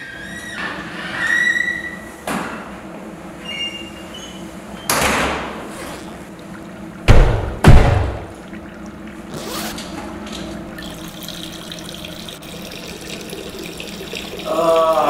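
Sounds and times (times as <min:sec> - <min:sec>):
running water: 0:05.3 - 0:15.0
door bang: 0:07.1 - 0:08.3
drawn-out falling voice: 0:14.4 - 0:15.0.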